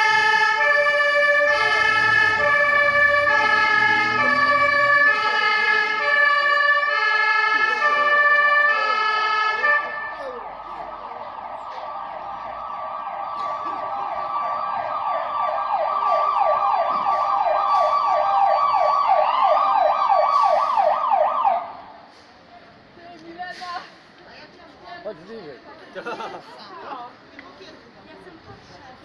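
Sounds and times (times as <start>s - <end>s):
emergency siren yelping: 0.0s - 22.0s.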